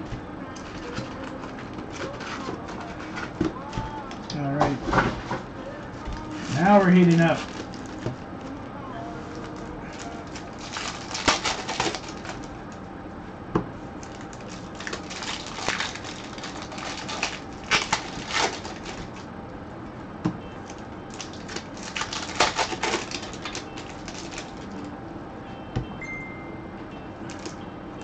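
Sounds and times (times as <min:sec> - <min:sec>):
card pack wrappers crinkling: 0:00.5 - 0:04.5, 0:06.1 - 0:08.6, 0:09.3 - 0:12.8, 0:14.0 - 0:19.3, 0:20.6 - 0:24.8, 0:27.3 - 0:27.6.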